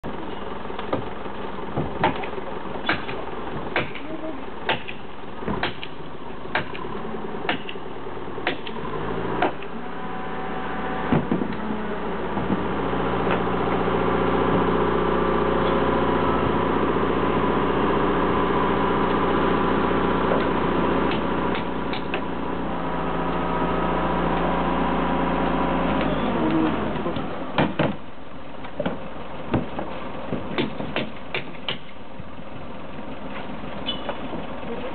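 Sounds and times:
crane engine running: 0:00.0 - 0:34.9
sharp knocks: 0:01.8 - 0:04.1, 0:04.7 - 0:06.8, 0:27.6 - 0:28.0, 0:28.8 - 0:32.0.

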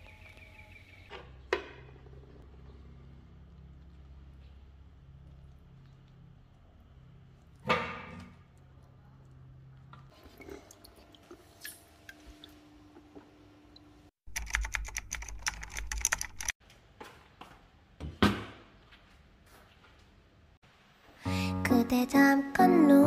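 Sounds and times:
typewriter typing clicks: 0:14.3 - 0:16.6.

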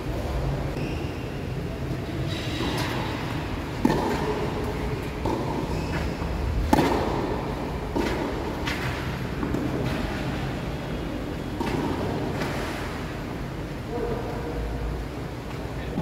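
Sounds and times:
racket hitting tennis ball: 0:02.6 - 0:10.4.

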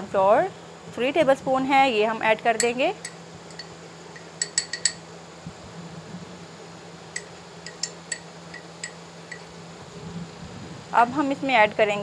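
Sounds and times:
steady low hum: 0:00.0 - 0:12.0
ceramic bowl clinking on glass dish: 0:02.6 - 0:05.0.

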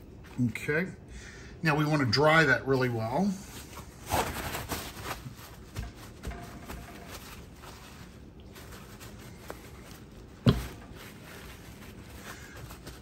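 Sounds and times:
paper towels rustling: 0:03.0 - 0:13.0.

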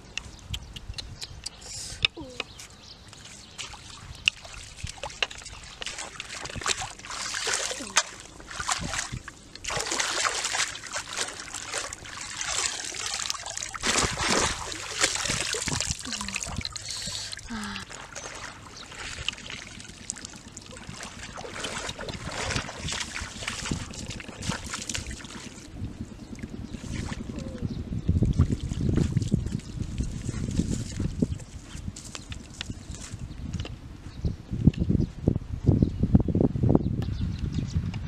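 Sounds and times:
wading through shallow water: 0:02.7 - 0:33.2
water splashing and sloshing: 0:03.0 - 0:27.6, 0:28.2 - 0:33.1.

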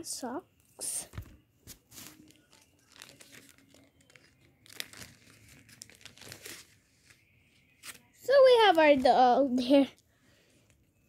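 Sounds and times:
paper packaging rustling: 0:01.2 - 0:08.1.

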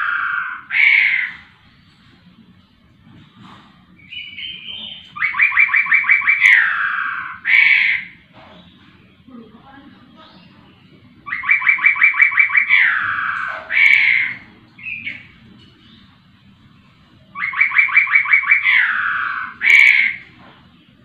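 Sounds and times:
laughingthrush singing: 0:03.8 - 0:08.3, 0:09.0 - 0:21.0.

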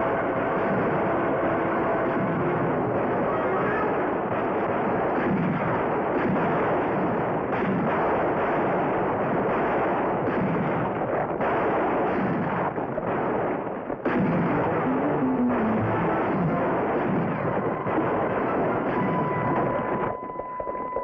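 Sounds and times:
dense din: 0:00.0 - 0:06.4, 0:14.1 - 0:21.0
rifle and handgun shots: 0:00.0 - 0:20.1.

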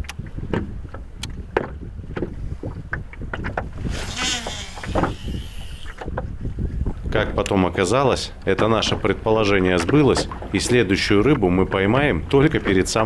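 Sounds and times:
waves slapping boat hull: 0:00.0 - 0:13.0
brief buzzing whir: 0:03.9 - 0:06.0.

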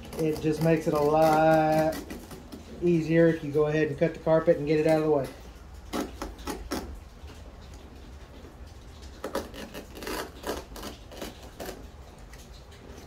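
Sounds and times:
knife cutting carpet: 0:00.0 - 0:02.7.

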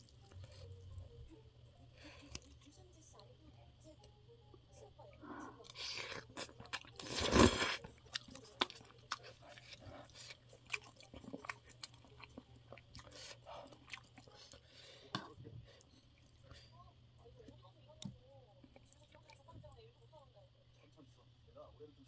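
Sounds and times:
person chewing and crunching: 0:00.0 - 0:00.8, 0:05.6 - 0:14.6.

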